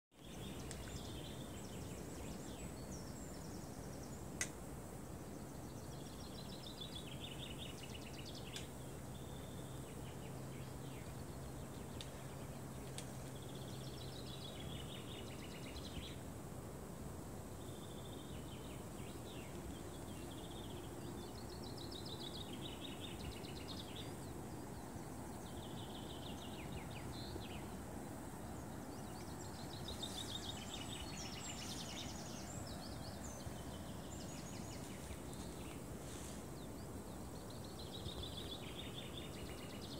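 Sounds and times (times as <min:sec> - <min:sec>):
faint low hum: 0:00.2 - 0:39.9
low background rush: 0:00.2 - 0:39.9.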